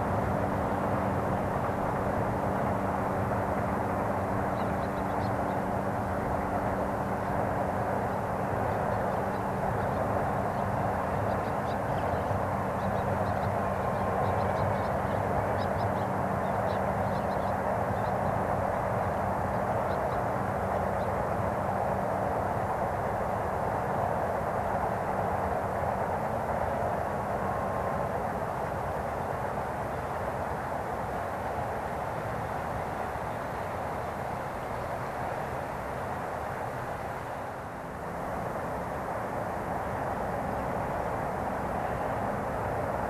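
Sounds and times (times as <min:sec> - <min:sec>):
low droning hum: 0:00.0 - 0:23.8
distant city traffic rumble: 0:00.0 - 0:43.0.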